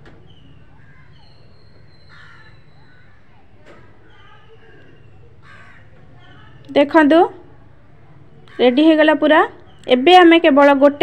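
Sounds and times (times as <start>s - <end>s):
small birds chirping: 0.0s - 11.0s
crow cawing: 2.0s - 3.1s, 4.4s - 6.7s, 8.5s - 8.9s.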